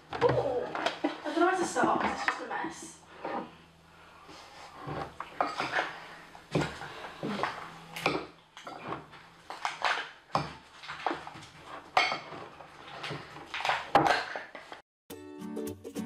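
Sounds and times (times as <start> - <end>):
spoon scraping glass bowl: 4.7 - 6.0.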